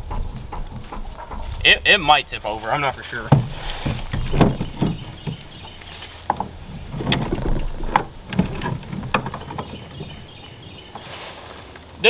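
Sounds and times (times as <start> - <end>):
sharp knocks: 0.0 - 2.2, 3.2 - 10.2
metal bracket clunking and scraping: 0.0 - 11.2.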